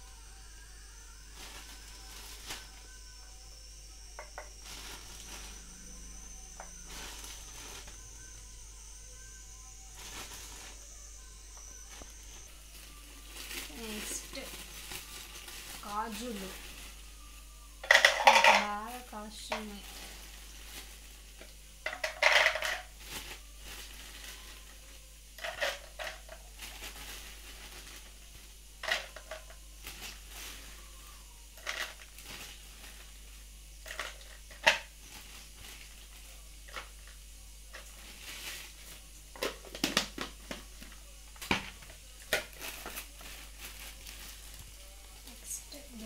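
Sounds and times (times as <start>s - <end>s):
plastic bag crinkling: 1.3s - 3.0s, 4.2s - 8.4s, 9.8s - 11.0s, 11.8s - 17.2s, 17.8s - 46.0s
nuts rattling into a jar: 17.8s - 18.8s, 21.8s - 23.0s, 25.4s - 27.0s, 28.8s - 29.6s, 31.6s - 32.2s, 33.8s - 34.9s.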